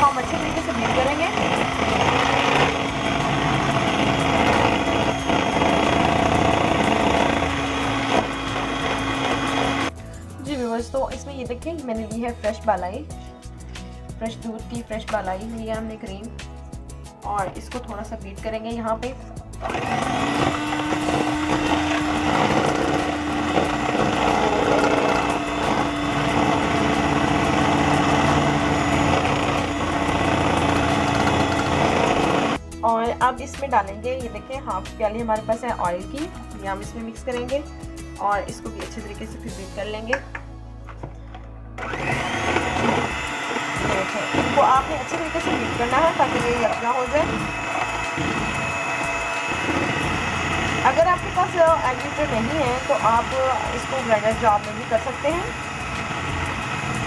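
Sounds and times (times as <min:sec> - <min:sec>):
electric hand mixer whirring: 0:00.0 - 0:10.0, 0:19.6 - 0:32.6, 0:41.8 - 0:57.0.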